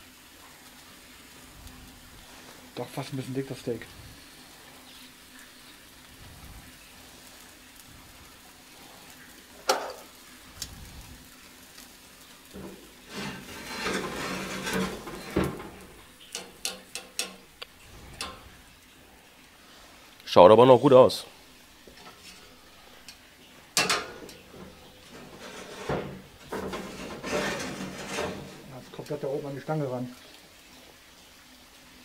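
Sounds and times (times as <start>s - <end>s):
steak sizzling on a grill: 0.0s - 32.0s
sharp clicks and knocks: 13.8s - 18.4s.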